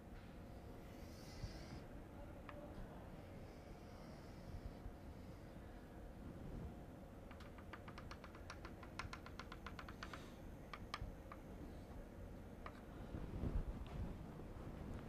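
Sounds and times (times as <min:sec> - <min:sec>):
chalk tapping on blackboard: 0:07.3 - 0:11.5.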